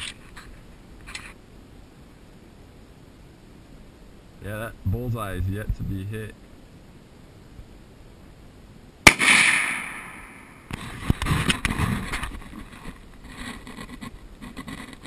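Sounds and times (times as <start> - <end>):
rifle shot with echo: 9.0 - 10.8
rustling and light knocks: 10.7 - 15.0.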